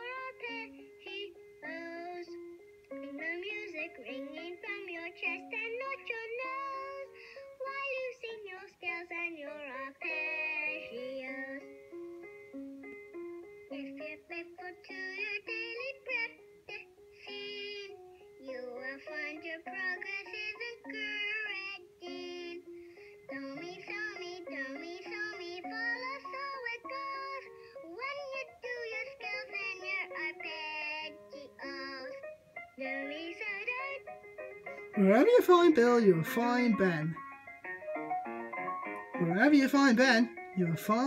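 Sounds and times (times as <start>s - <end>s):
voices singing children's song: 0.0s - 11.8s, 13.7s - 37.2s, 39.0s - 41.0s
instrumental backing: 31.0s - 41.0s.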